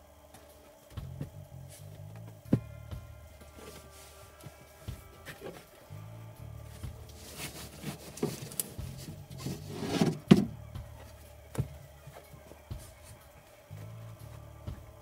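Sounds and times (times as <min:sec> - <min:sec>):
fabric scraping on wood: 0:09.3 - 0:10.3.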